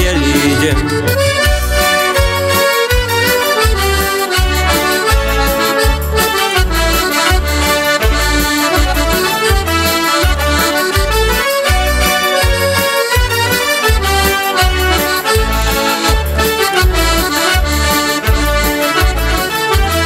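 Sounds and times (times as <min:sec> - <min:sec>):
accordion folk melody: 0:00.0 - 0:20.0
steady bass beat: 0:00.0 - 0:20.0.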